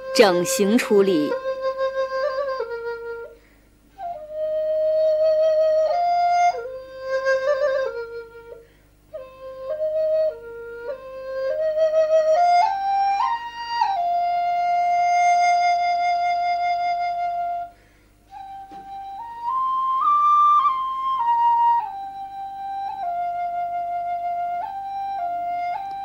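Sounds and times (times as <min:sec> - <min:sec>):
solo flute melody: 0:00.0 - 0:26.0.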